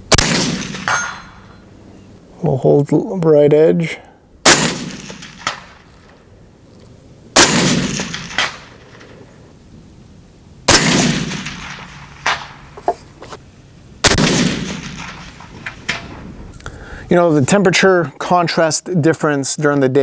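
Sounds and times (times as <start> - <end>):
suppressed rifle shots: 0.1 - 1.4, 4.4 - 6.1, 7.4 - 9.2, 10.7 - 12.6, 14.0 - 16.2
bullet ringing steel plate: 0.6 - 1.6.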